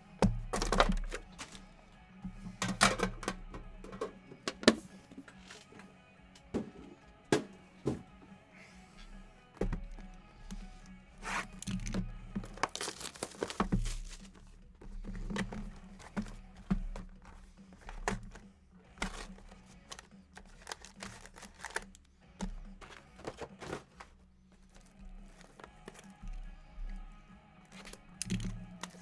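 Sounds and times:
cardboard boxes set down: 11.4s - 21.8s, 22.4s - 24.2s
plastic wrap tearing and crinkling: 12.5s - 14.3s, 19.0s - 22.0s.

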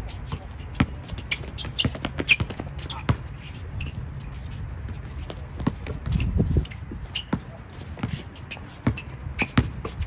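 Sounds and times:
basketball bouncing on court: 0.3s - 3.3s, 5.3s - 6.2s, 8.8s - 10.0s.

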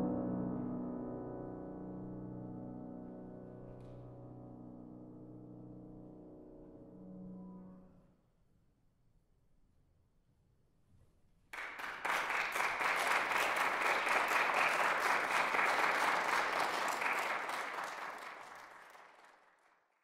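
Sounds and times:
audience applauding: 11.6s - 19.9s.

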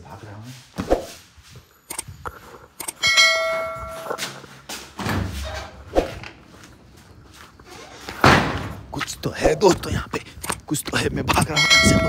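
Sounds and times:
bell-like metallic clang: 3.0s - 4.3s, 11.6s - 12.0s.

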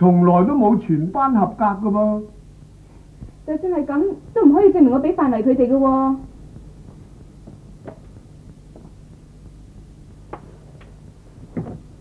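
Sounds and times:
steady low hum: 0.0s - 12.0s
knock on wooden desk: 11.5s - 11.8s.

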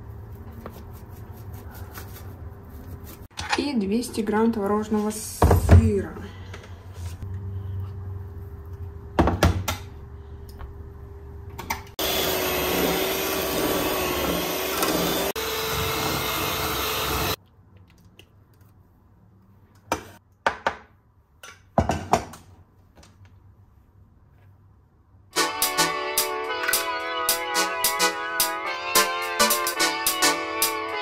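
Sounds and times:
electric mixer beating: 12.0s - 17.4s.

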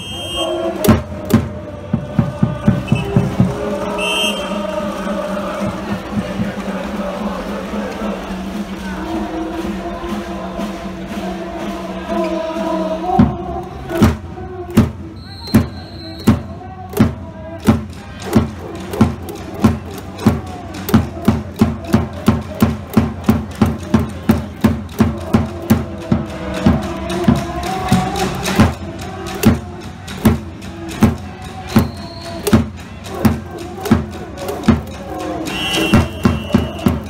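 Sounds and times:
crowd voices: 0.0s - 37.0s
deep drum beating: 16.3s - 31.9s.

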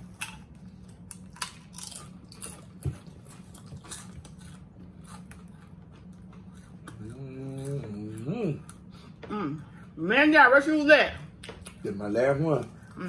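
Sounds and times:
tortilla chips crunching: 0.0s - 8.8s
low steady hum: 0.0s - 13.0s.

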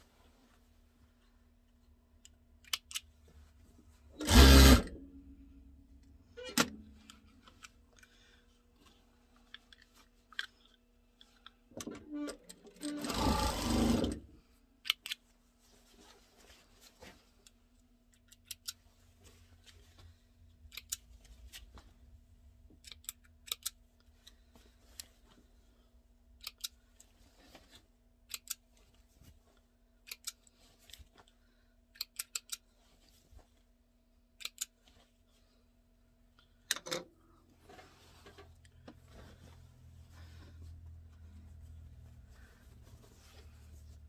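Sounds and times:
soft fabric rustling: 37.5s - 44.0s.

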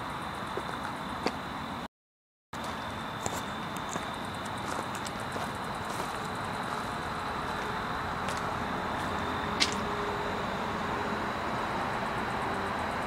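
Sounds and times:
distant road traffic hum: 0.0s - 1.9s, 2.6s - 13.0s
thin high whine: 2.6s - 13.0s.

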